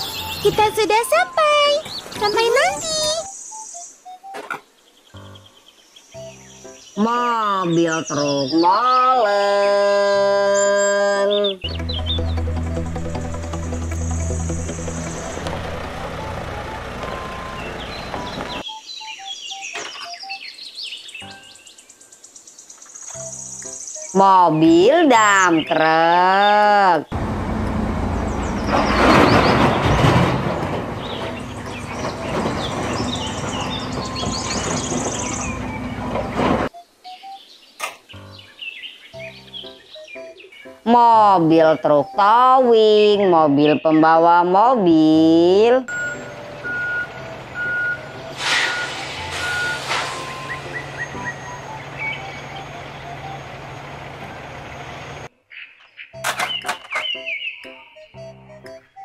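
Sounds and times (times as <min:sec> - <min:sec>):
birds chirping: 0:00.0 - 0:59.0
diesel engine running: 0:11.7 - 0:18.6, 0:27.1 - 0:36.7, 0:45.9 - 0:55.3
reversing alarm beeping: 0:14.1 - 0:20.4, 0:31.6 - 0:37.2, 0:45.9 - 0:54.0
air hissing bursts: 0:48.3 - 0:51.1.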